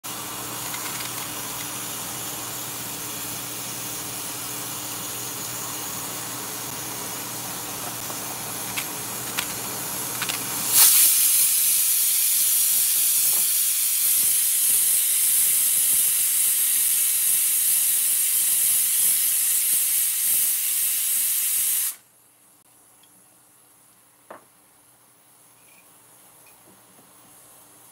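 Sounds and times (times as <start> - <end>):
pressure cooker hissing: 0.1 - 22.0.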